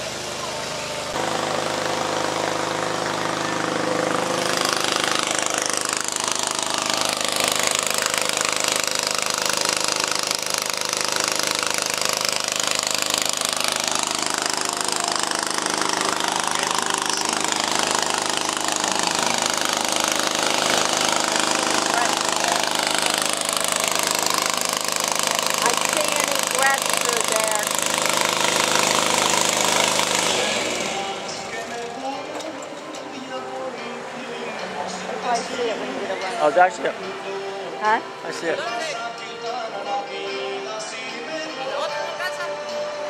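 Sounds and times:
engine running steadily: 0:00.0 - 0:38.7
loud even hiss: 0:27.3 - 0:32.0.

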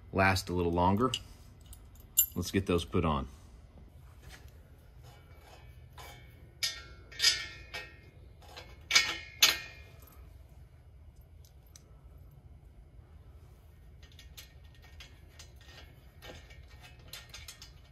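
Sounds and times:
bolts clinking against steel flange: 0:05.0 - 0:10.2, 0:14.0 - 0:17.9.

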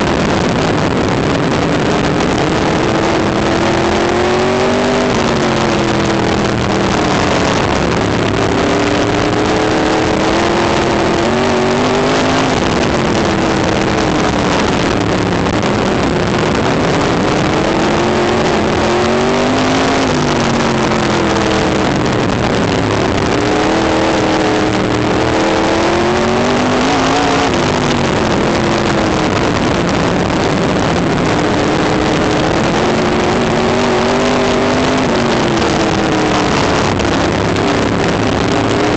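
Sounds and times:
race car engine: 0:00.0 - 0:38.9.

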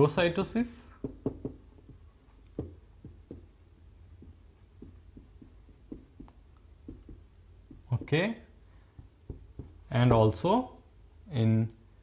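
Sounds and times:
marker writing on whiteboard: 0:01.0 - 0:10.4.

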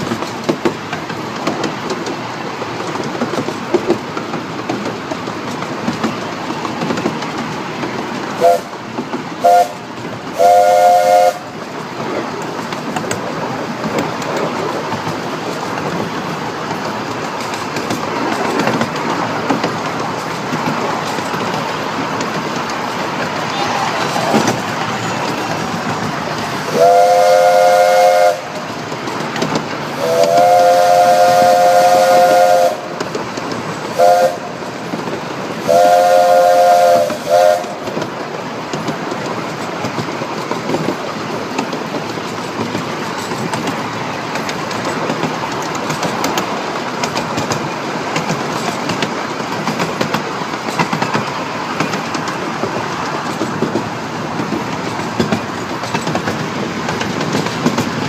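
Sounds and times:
train rail clatter: 0:00.0 - 0:58.0
steam locomotive whistle: 0:08.4 - 0:08.8, 0:09.4 - 0:11.6, 0:26.6 - 0:28.6, 0:29.9 - 0:32.9, 0:33.9 - 0:34.6, 0:35.6 - 0:37.9.

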